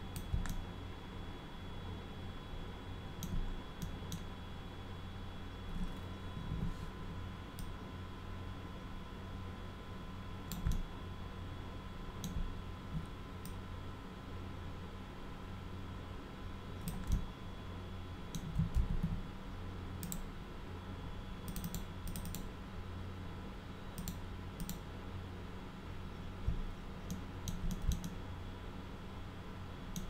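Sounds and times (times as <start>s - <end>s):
low electrical hum: 0.0s - 30.0s
keyboard and mouse clicking: 0.1s - 0.6s, 3.2s - 4.3s, 10.5s - 10.8s, 16.8s - 17.3s, 18.3s - 19.2s, 20.0s - 20.3s, 21.5s - 22.5s, 24.0s - 24.8s, 26.5s - 28.2s.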